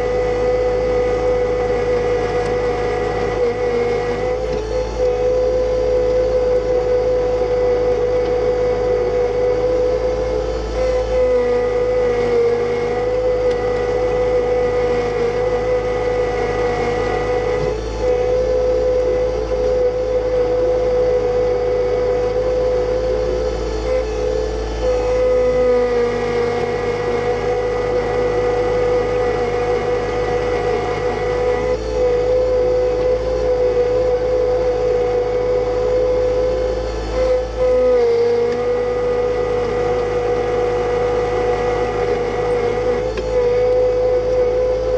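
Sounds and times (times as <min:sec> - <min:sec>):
high whine: 0:00.0 - 0:44.9
tractor diesel engine running: 0:00.0 - 0:44.9.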